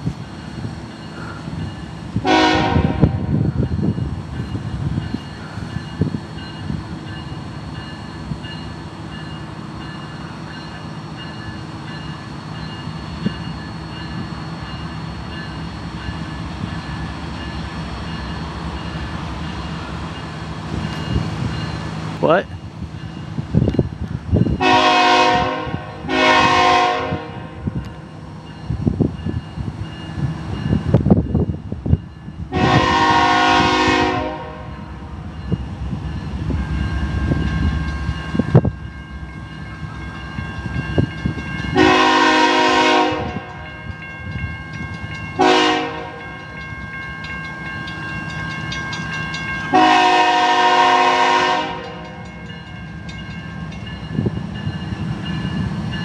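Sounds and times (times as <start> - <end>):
low train rumble: 0.0 - 56.0
locomotive air horn blasts: 2.2 - 3.4, 24.6 - 27.6, 32.5 - 34.8, 41.8 - 43.6, 45.4 - 46.2, 49.7 - 52.0.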